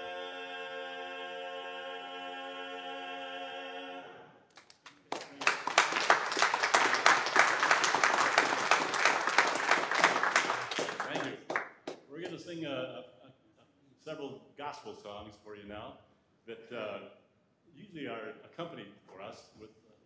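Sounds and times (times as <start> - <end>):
men singing a cappella: 0.0 - 4.3
audience applauding: 4.5 - 12.0.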